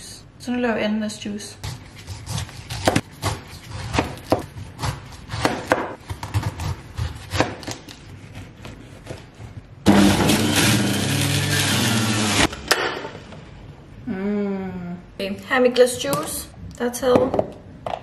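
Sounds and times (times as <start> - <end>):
knife chopping pineapple: 1.6 - 9.5
juicer motor humming and grinding: 9.9 - 12.7.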